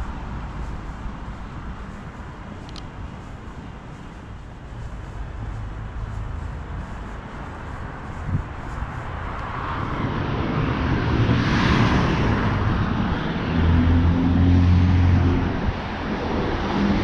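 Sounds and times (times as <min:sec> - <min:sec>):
car passing: 0:00.0 - 0:17.0
low engine hum: 0:00.0 - 0:17.0.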